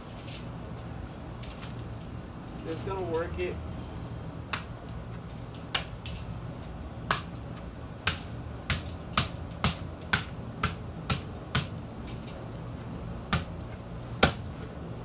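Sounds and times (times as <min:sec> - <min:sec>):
hammer knocking on coconut: 0:08.0 - 0:11.8, 0:13.3 - 0:13.5.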